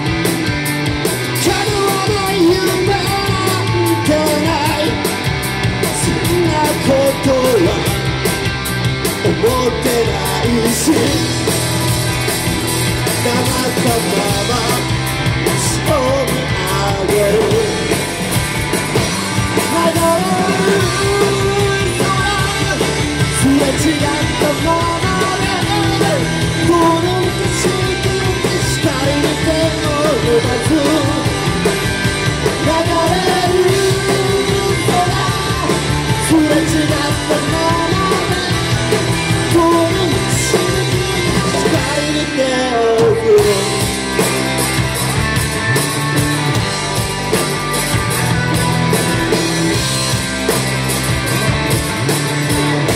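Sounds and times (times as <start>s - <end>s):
bass guitar: 0.0s - 52.9s
drum kit: 0.0s - 52.9s
electric guitars: 0.0s - 52.9s
man singing: 1.3s - 5.1s, 5.8s - 8.2s, 9.2s - 11.6s, 13.1s - 18.0s, 19.5s - 44.1s.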